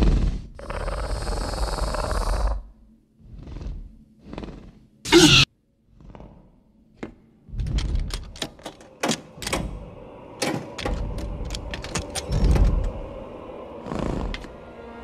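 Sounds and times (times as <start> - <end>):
low rumbles: 6.1 - 15.0
door handle clicks and knocks: 7.7 - 9.8, 10.4 - 12.9.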